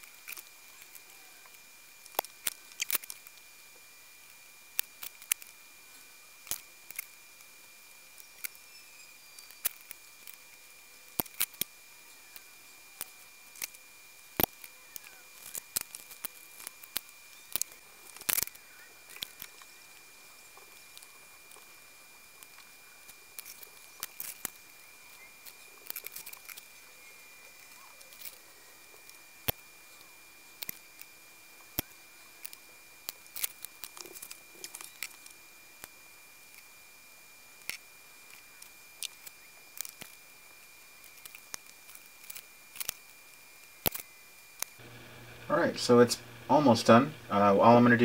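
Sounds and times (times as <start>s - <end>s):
faint steady high tone: 0.0s - 2.0s, 5.4s - 44.5s
flush cutters trimming leads: 44.8s - 48.0s.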